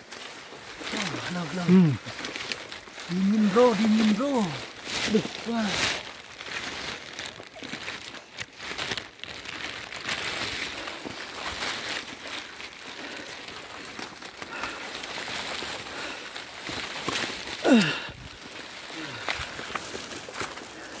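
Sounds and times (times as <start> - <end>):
footsteps through undergrowth: 0.0 - 21.0
rain jacket brushing: 0.0 - 21.0.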